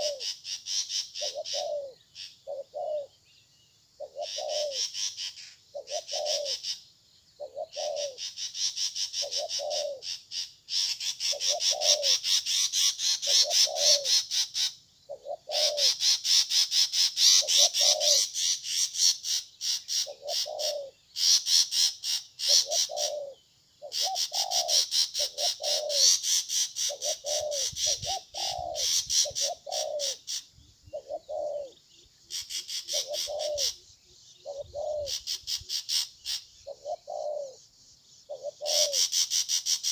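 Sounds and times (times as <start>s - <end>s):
dove cooing: 0.0s - 3.2s, 4.0s - 6.8s, 7.4s - 10.2s, 11.0s - 14.4s, 15.1s - 16.4s, 17.2s - 19.3s, 19.9s - 37.6s, 38.3s - 39.9s.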